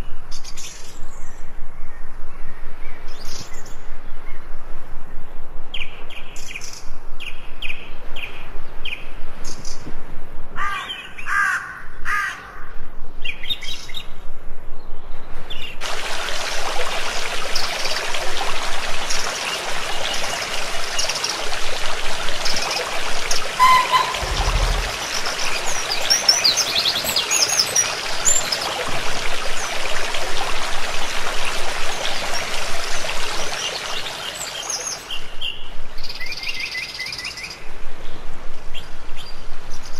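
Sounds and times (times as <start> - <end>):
stream flowing in stone channel: 15.8 - 37.5
birds chirping: 17.5 - 30.1, 31.5 - 35.6.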